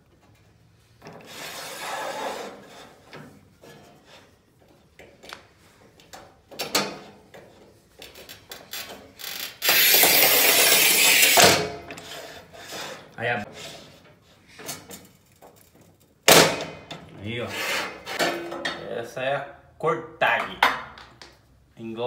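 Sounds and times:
scoring wheel scratching tile: 1.2 - 3.1, 9.3 - 11.4, 17.4 - 18.2
tile cutter sliding rasp: 1.3 - 3.0, 17.5 - 18.2.

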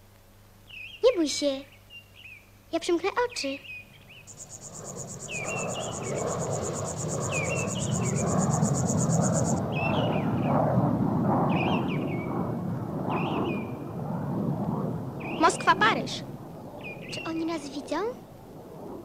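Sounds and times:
bird chirping: 3.6 - 10.2
jet aircraft passing overhead: 3.9 - 19.0
cricket trilling: 4.2 - 9.6.

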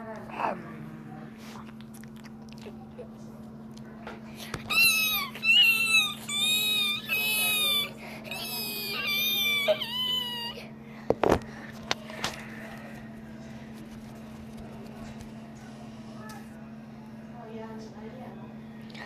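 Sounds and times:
high-pitched meows: 4.7 - 10.6.

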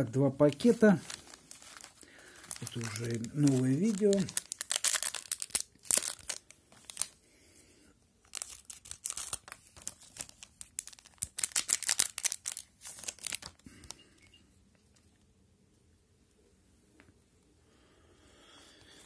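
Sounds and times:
card pack wrapper crinkling: 0.4 - 7.2, 8.2 - 14.0.

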